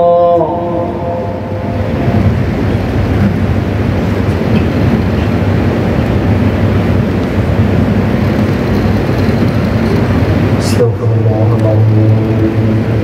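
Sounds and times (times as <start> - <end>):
reverberant chanted voice: 0.0 - 2.3, 10.6 - 13.0
steady low rumbling: 0.0 - 13.0.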